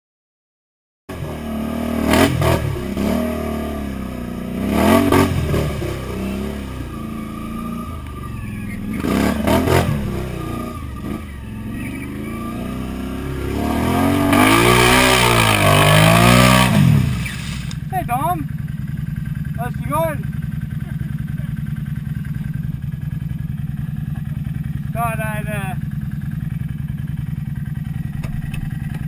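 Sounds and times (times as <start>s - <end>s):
quad engine revving: 1.1s - 18.5s.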